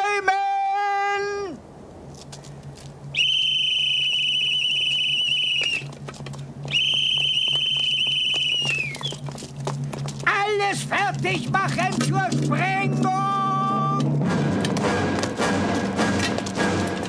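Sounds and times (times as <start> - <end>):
signal whistle blasts: 3.1 - 5.9, 6.7 - 9.2.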